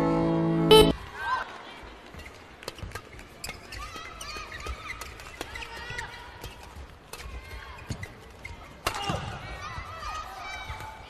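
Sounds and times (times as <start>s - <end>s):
shoes squeaking on court: 2.1s - 8.8s.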